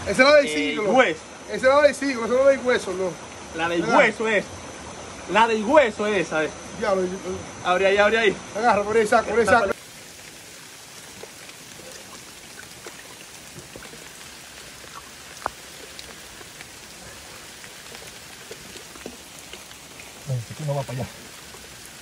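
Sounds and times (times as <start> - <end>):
water dripping: 9.4 - 22.0
water pattering: 9.4 - 22.0.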